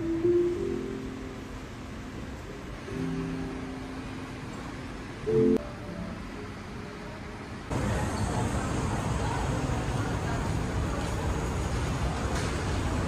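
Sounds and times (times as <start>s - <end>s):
outdoor street bustle: 0.0s - 13.0s
passing traffic: 7.7s - 13.0s.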